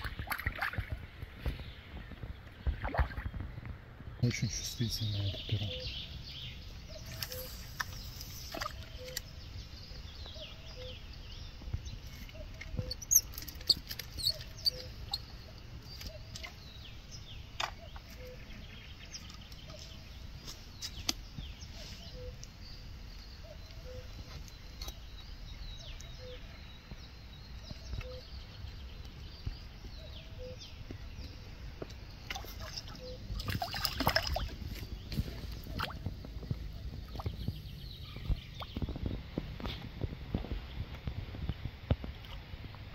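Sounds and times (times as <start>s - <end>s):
fish splashing in water: 0.0s - 1.1s, 2.7s - 3.4s, 32.2s - 34.7s
birds chirping: 0.0s - 42.9s.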